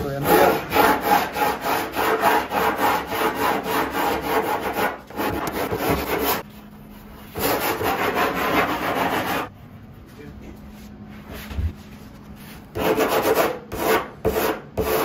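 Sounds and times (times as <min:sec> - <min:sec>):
sandpaper scrubbing: 0:07.2 - 0:09.5, 0:12.4 - 0:15.0.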